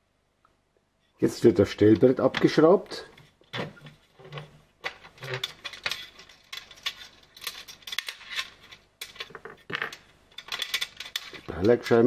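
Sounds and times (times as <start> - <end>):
metal screws clicking: 2.0 - 11.6.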